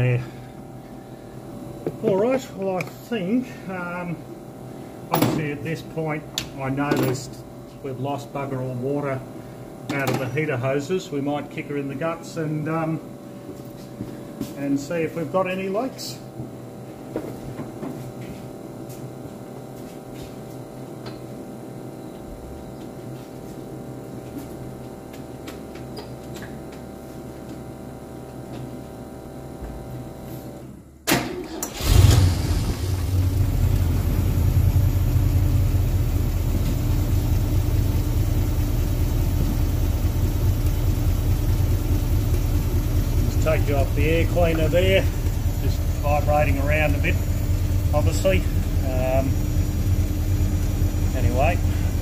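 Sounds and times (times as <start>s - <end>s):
faint steady hum: 0.0s - 31.1s
car engine starting and idling: 31.1s - 52.0s.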